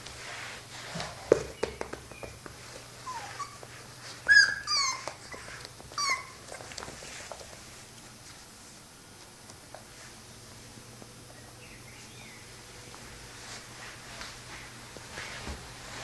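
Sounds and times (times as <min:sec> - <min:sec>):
puppy yipping and whimpering: 0:03.0 - 0:06.8.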